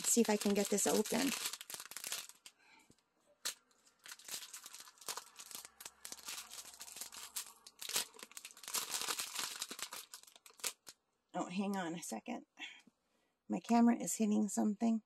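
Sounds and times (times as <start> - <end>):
small beads rattling in bag: 0.0 - 2.5, 4.0 - 10.9
plastic bags crinkling: 0.0 - 2.8, 3.4 - 11.0.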